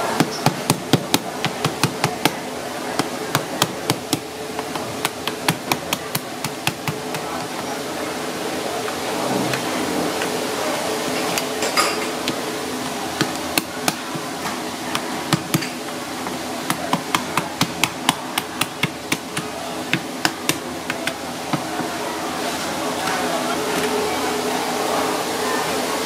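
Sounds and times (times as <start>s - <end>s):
steady hum: 0.0s - 26.0s
knife chopping through crab shell: 0.2s - 2.4s, 3.0s - 7.7s, 12.2s - 15.8s, 16.7s - 21.7s.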